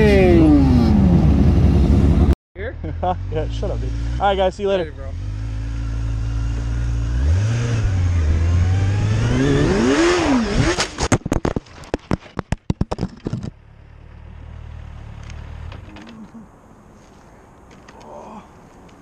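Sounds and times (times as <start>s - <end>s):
motorcycle engine revving: 0.0s - 2.4s, 3.0s - 11.1s
motorcycle crashing and tumbling: 5.2s - 13.8s.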